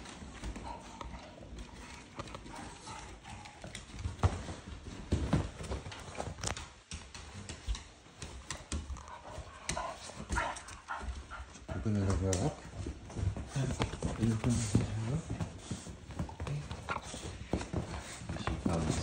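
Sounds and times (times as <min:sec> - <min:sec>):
dog claws clicking on wooden floor: 0:05.2 - 0:11.2.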